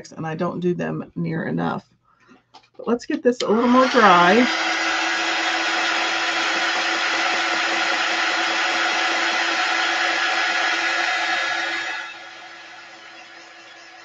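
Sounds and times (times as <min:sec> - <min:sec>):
heat tool fan blowing: 0:03.4 - 0:14.0.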